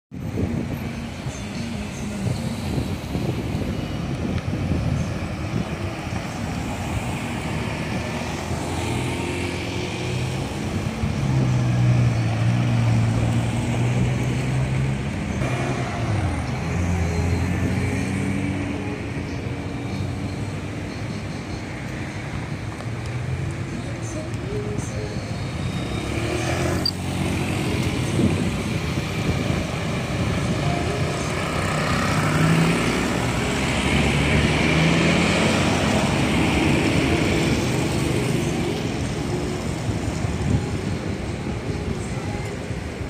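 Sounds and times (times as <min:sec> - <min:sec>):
traffic driving past: 0:00.4 - 0:43.0.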